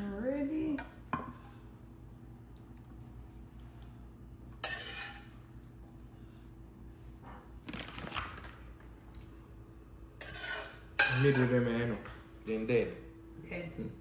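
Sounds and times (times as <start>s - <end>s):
metal spoon scraping frying pan: 4.6s - 5.4s, 10.2s - 11.4s.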